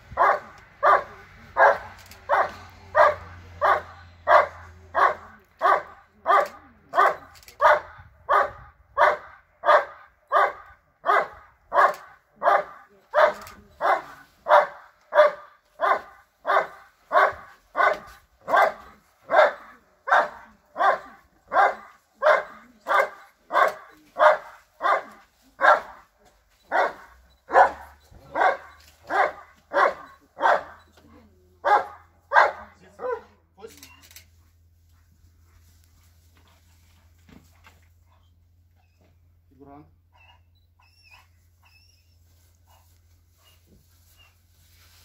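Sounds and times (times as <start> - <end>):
dog barking loudly: 0.1 - 26.1, 26.7 - 30.8, 31.6 - 33.4.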